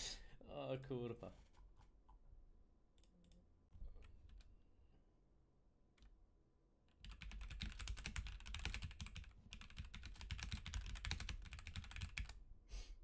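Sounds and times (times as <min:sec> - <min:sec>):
computer keyboard typing: 0:07.0 - 0:12.4.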